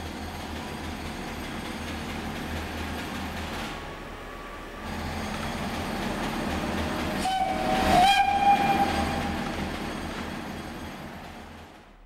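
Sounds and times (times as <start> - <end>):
steam locomotive whistle blast: 7.2 - 9.7.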